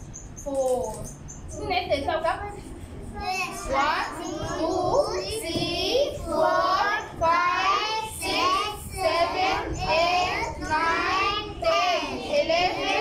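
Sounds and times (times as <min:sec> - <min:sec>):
children singing: 0:03.5 - 0:13.0.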